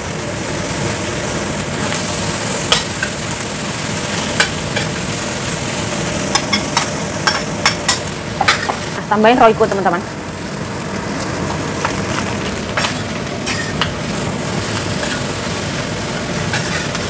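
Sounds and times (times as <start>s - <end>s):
noodles sizzling in frying pan: 0.0s - 17.0s.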